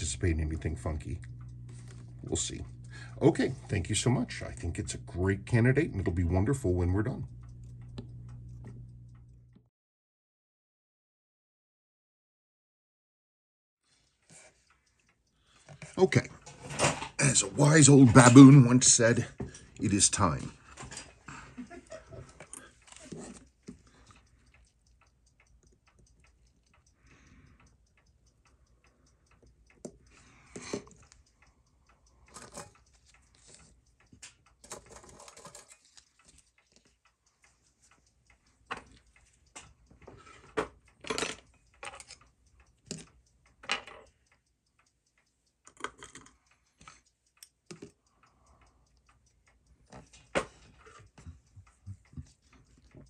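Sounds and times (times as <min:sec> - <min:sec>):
watch movement ticking fast: 0:00.0 - 0:09.6, 0:13.8 - 0:53.0
metal tools clicking on watch: 0:17.4 - 0:53.0.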